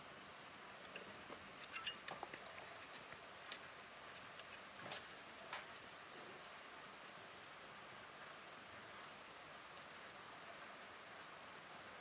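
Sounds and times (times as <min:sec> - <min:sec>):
small metal clicks and scrapes: 0:00.9 - 0:05.1.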